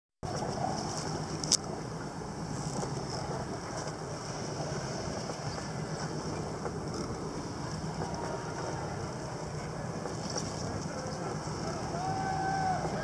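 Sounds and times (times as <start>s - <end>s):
low steady hum: 0.2s - 13.0s
water noise: 0.2s - 13.0s
wind: 0.2s - 13.0s.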